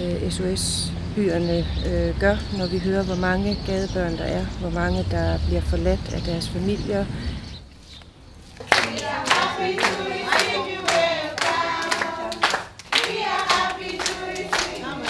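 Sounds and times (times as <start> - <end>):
clapping in time: 8.6 - 15.0
children singing together: 8.8 - 15.0.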